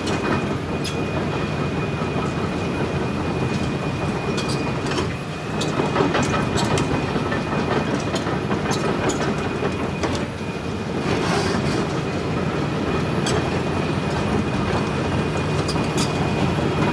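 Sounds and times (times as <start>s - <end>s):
excavator tracks rattling and clanking: 0.0s - 16.9s
thin steady whine: 0.2s - 8.2s, 9.2s - 16.9s.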